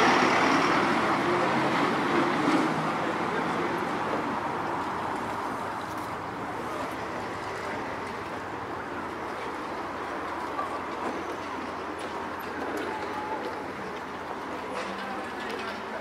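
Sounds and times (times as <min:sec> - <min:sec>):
road vehicle passing: 0:00.0 - 0:15.8
city street hum: 0:00.0 - 0:16.0.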